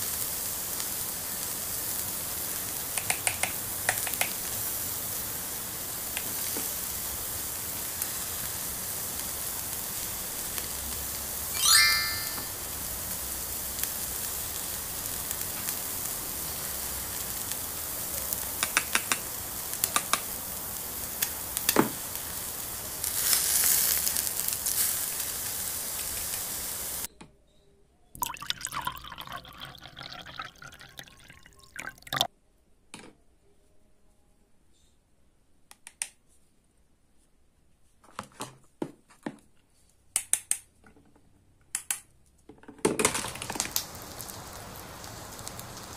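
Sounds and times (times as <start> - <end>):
steady hiss: 0.0 - 11.5, 12.5 - 27.1, 43.2 - 45.9
plastic toys clicking and tapping: 3.0 - 4.4, 18.6 - 19.2, 40.2 - 43.8
short falling chirp: 11.6 - 12.6
plastic rustles: 43.0 - 45.4.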